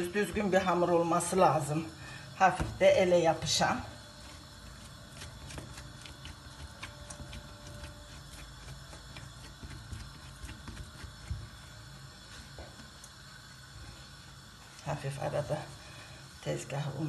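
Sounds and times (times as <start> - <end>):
hands kneading dough: 2.7 - 15.6.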